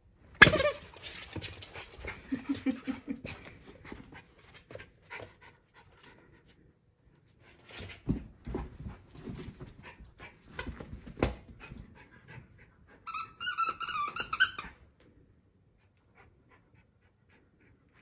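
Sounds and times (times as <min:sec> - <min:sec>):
squeaky toy squeaks: 0:00.4 - 0:00.9, 0:13.1 - 0:14.8.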